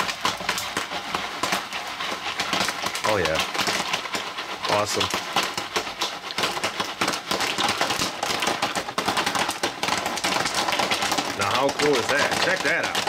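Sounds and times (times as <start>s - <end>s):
popcorn popping in a foil pan: 0.0s - 13.0s.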